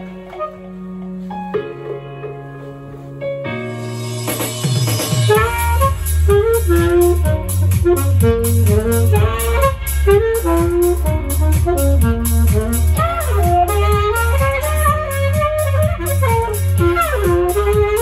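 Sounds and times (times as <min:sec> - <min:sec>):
saxophone melody: 0:00.0 - 0:01.5, 0:05.2 - 0:18.0
backing track with heavy bass: 0:00.0 - 0:18.0.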